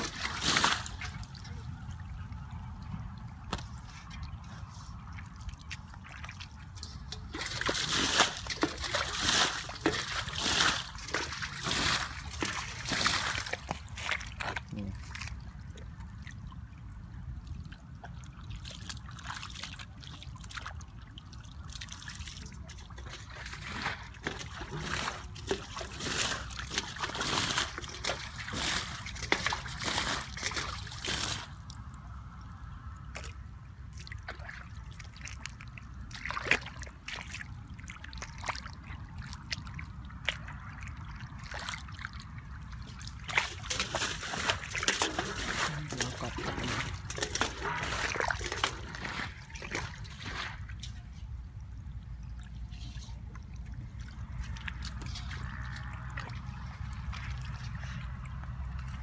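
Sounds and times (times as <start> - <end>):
boots sloshing in mud: 0.0 - 1.8, 2.9 - 16.0, 21.4 - 31.9, 33.2 - 51.6, 52.4 - 59.0
muddy water splashing: 0.0 - 59.0.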